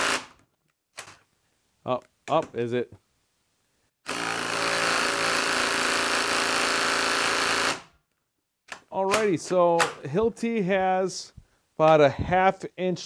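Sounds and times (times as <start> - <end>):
impact driver hammering screw: 0.0 - 0.4, 4.1 - 7.9.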